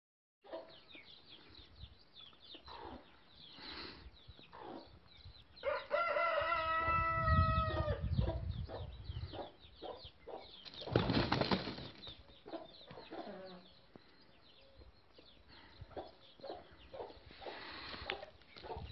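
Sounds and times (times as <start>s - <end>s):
chickens calling: 0.4s - 18.9s
rooster crowing: 5.6s - 8.0s
wings flapping: 10.7s - 12.2s.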